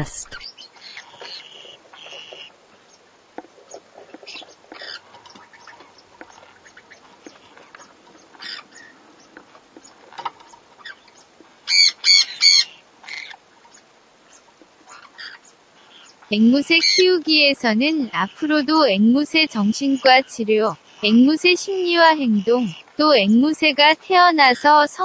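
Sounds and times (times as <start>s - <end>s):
parrots squawking harshly: 0.0s - 2.5s, 4.2s - 5.9s, 8.4s - 9.0s, 11.6s - 13.4s, 14.9s - 17.2s
parrots chirping and squeaking: 0.0s - 18.6s, 19.2s - 23.0s.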